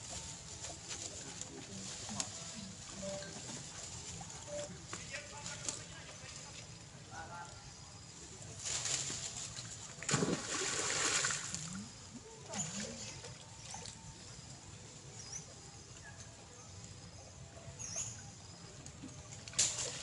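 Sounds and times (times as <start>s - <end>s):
water splashing: 9.2s - 13.9s.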